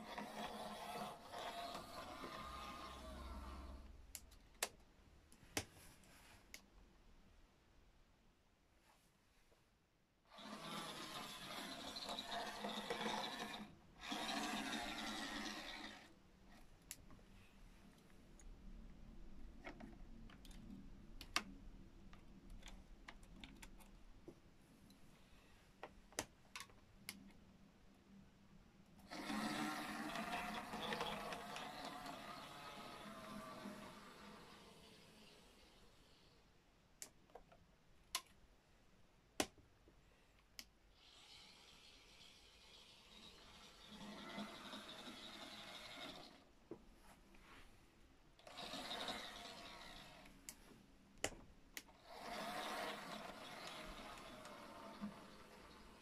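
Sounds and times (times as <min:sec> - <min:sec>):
model train motor whirring: 0:00.0 - 0:03.9, 0:10.3 - 0:16.1, 0:29.0 - 0:36.4, 0:40.9 - 0:46.5, 0:48.4 - 0:50.4, 0:51.9 - 0:56.0.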